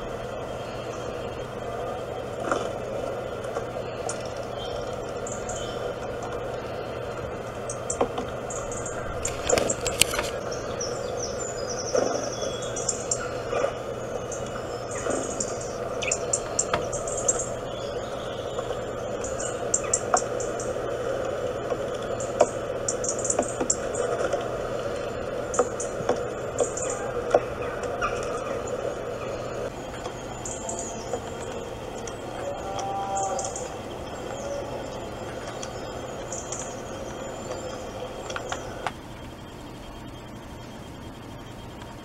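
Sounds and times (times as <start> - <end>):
steady hiss: 0.0 - 41.9
birds trilling chirps: 0.0 - 42.0
sharp bird chirps: 7.7 - 20.7.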